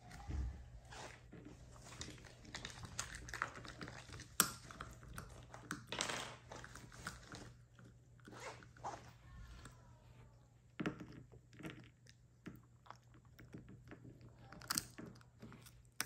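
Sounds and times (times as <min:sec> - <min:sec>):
puppy gnawing on a chew: 0:01.5 - 0:05.9.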